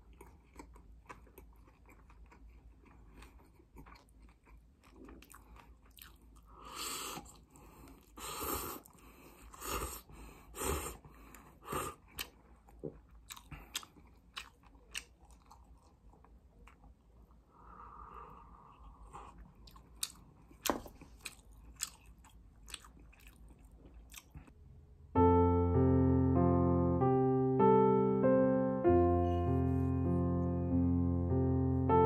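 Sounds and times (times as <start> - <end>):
mouth clicks and chewing: 0.0 - 8.2, 11.2 - 16.9, 19.1 - 24.6.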